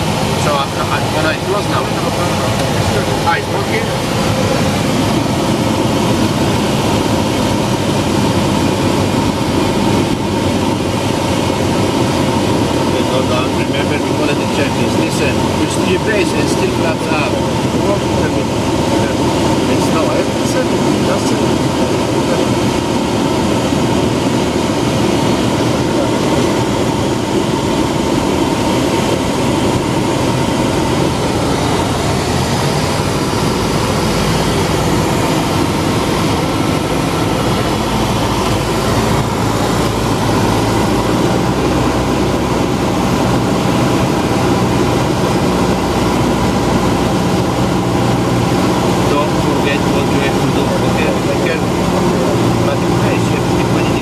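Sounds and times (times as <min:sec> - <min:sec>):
propeller plane engine droning: 0:00.0 - 0:54.0.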